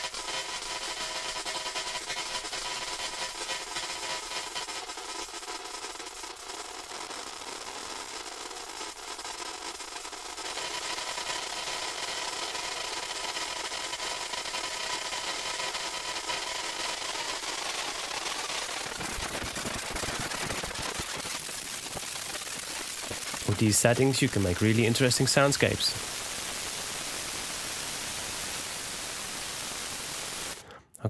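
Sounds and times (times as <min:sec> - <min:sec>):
buzzing hissy granular texture: 0:17.7 - 0:30.6.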